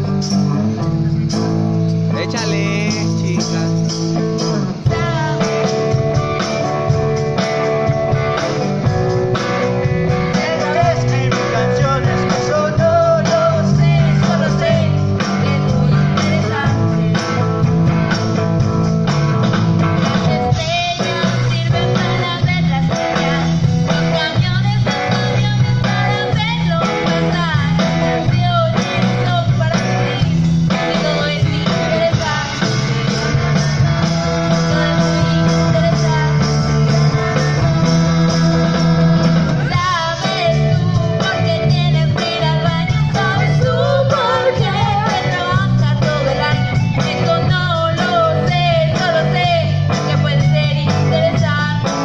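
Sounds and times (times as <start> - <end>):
live band through loudspeakers: 0.0 - 52.0
person singing: 4.8 - 6.7, 9.4 - 17.5, 20.2 - 33.2, 34.0 - 52.0.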